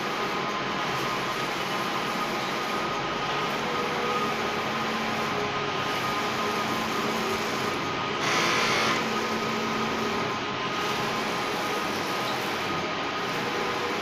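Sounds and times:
printer motors whirring: 0.0s - 14.0s.

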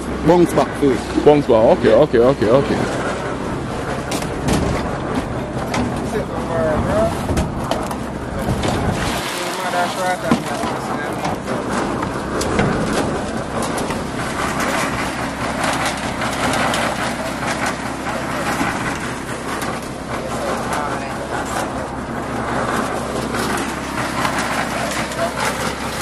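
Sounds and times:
concrete mixer engine hum: 0.0s - 26.0s
shovels and buckets scraping: 6.8s - 26.0s.

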